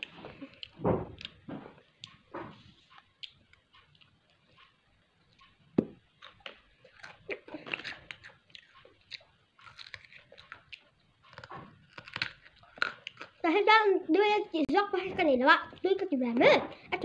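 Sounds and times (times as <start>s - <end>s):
child chewing crunchy chips: 0.0s - 13.7s
crunching bites of carrot: 6.2s - 13.4s.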